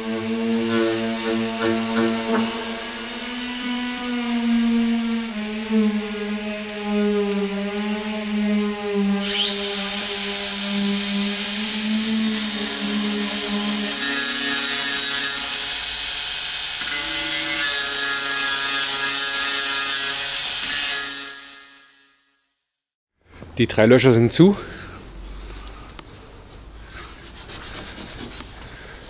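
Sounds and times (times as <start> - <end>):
angle grinder grinding steel: 0.0 - 22.0.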